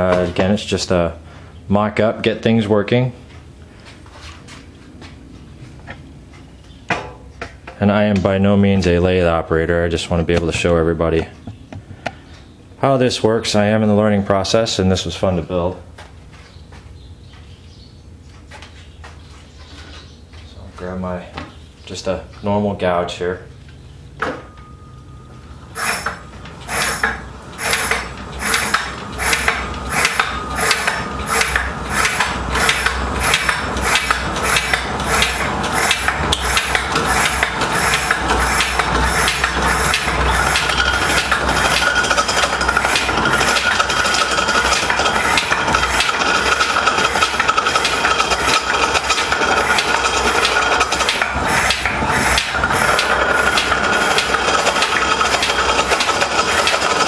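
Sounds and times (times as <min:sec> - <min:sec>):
faint lathe whine: 0:24.4 - 0:57.0
gouge scraping spinning wood: 0:25.8 - 0:57.0.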